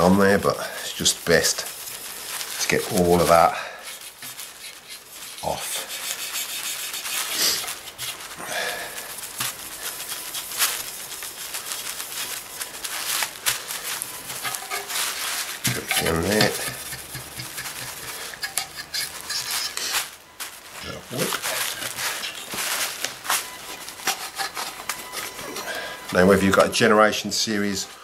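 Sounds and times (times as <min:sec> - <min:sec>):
scratchy rubbing on metal: 0:00.0 - 0:08.3, 0:08.9 - 0:20.1, 0:23.8 - 0:26.6.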